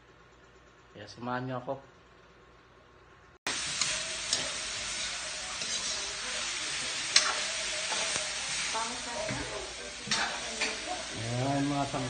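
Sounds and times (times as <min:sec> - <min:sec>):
noodles sizzling in pan: 0:03.5 - 0:12.0.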